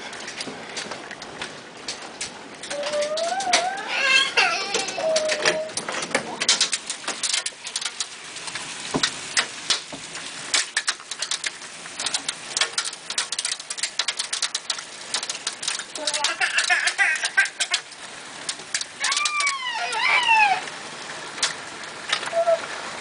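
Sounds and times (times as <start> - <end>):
hailstones rattling: 0.0 - 23.0.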